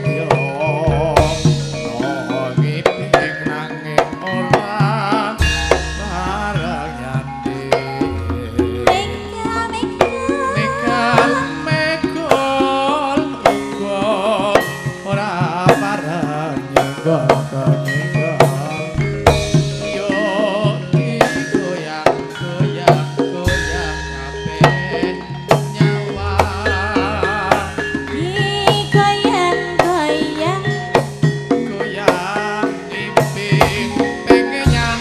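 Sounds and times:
gamelan ensemble held tones: 0.0s - 35.0s
hand drum strokes: 0.0s - 35.0s
woman singing with vibrato: 3.4s - 14.7s, 24.5s - 31.2s.

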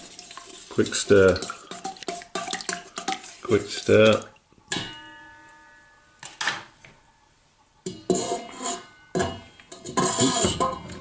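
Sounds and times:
steel bowl ringing: 4.7s - 6.2s.

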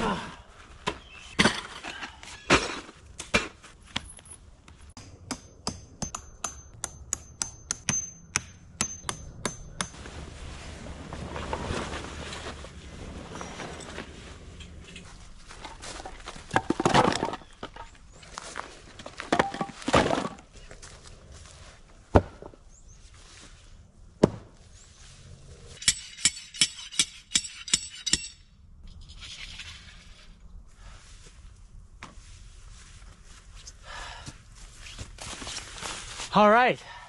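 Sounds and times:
hammer striking metal tent stakes: 4.9s - 10.1s, 25.8s - 28.5s
firewood clunking: 15.5s - 18.0s, 19.0s - 20.4s, 24.2s - 24.6s.

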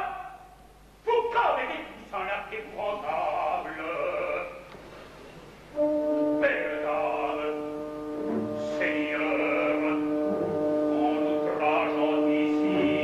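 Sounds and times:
opera voice singing: 1.6s - 4.6s, 6.4s - 7.8s, 8.6s - 13.0s
orchestra held chord: 5.8s - 13.0s.

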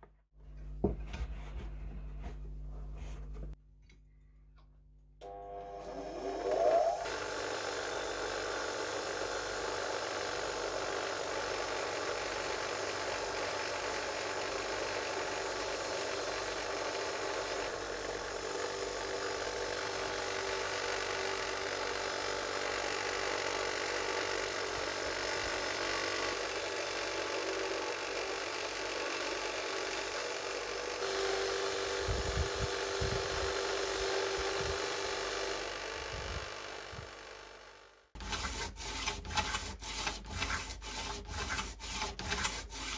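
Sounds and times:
grinder motor hum: 5.2s - 38.1s.

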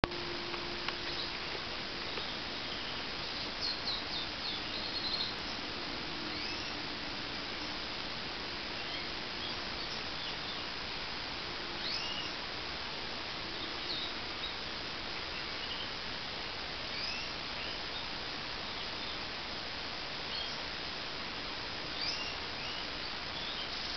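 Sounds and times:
steady hiss: 0.0s - 23.9s
bird chirping: 0.9s - 5.7s, 6.3s - 6.8s, 11.8s - 12.4s, 16.9s - 18.1s, 21.9s - 23.9s.

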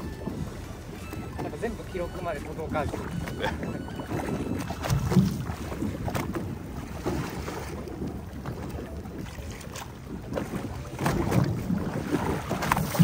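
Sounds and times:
water washing against hull: 0.0s - 13.0s
wind on microphone: 0.0s - 13.0s.

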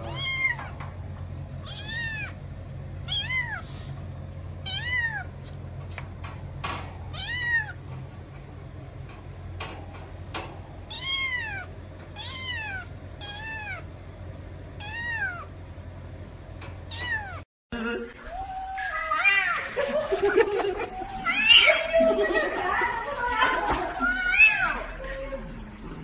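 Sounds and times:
kittens meowing: 0.0s - 0.8s, 1.6s - 2.4s, 3.0s - 4.0s, 4.6s - 5.4s, 7.1s - 7.8s, 10.9s - 13.9s, 14.8s - 15.5s, 16.9s - 17.4s, 18.2s - 19.9s, 21.0s - 22.2s, 23.8s - 25.0s
steady low hum: 0.0s - 26.0s.

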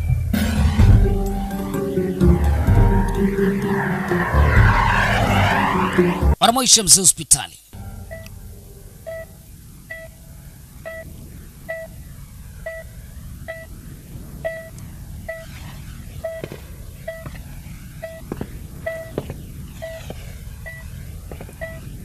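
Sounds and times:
low steady rumble: 0.0s - 6.4s, 7.8s - 22.0s
heart monitor beeping: 8.1s - 8.3s, 9.1s - 9.3s, 9.9s - 10.2s, 10.8s - 11.1s, 11.7s - 12.0s, 12.6s - 13.7s, 14.4s - 15.5s, 16.2s - 17.4s, 18.0s - 21.9s.

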